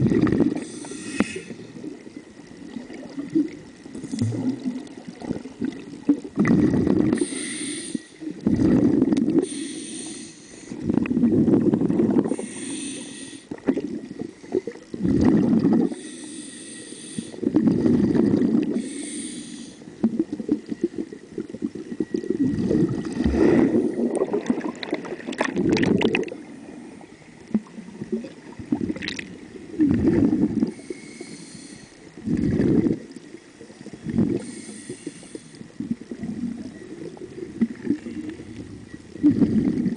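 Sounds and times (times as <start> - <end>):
bubbling: 0.0 - 0.7, 1.3 - 7.3, 8.2 - 9.5, 10.8 - 12.4, 13.5 - 16.0, 17.4 - 18.9, 20.0 - 26.7, 27.4 - 30.9, 32.2 - 34.6, 35.7 - 39.9
diver breathing underwater: 0.4 - 1.9, 6.4 - 13.6, 14.4 - 20.0, 29.8 - 33.1, 34.0 - 36.5.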